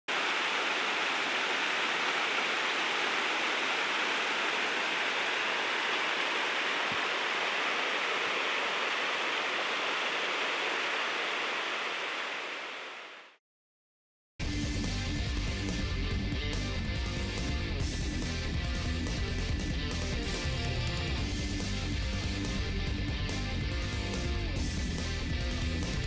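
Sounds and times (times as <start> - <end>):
waterfall rushing: 0.1 - 13.0.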